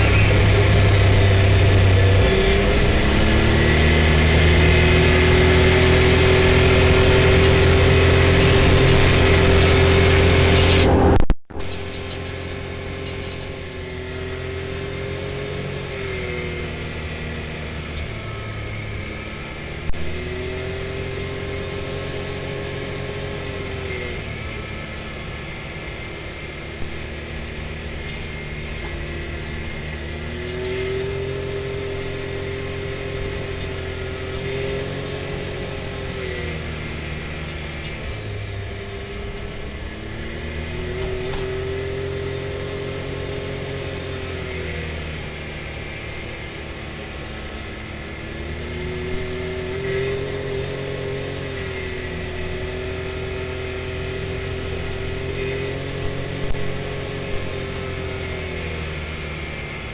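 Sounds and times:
car engine running: 0.0 - 59.9
tires on gravel: 0.0 - 59.9.

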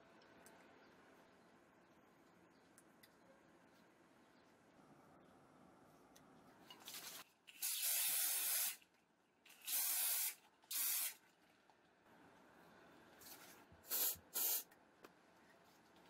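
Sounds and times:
aerosol spray hissing: 9.7 - 11.2, 13.8 - 14.7.

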